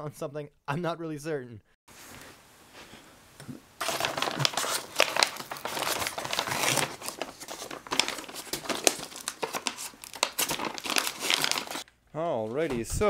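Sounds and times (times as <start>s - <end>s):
knife slitting envelope: 3.8s - 11.9s
paper envelope crinkling: 3.8s - 11.9s.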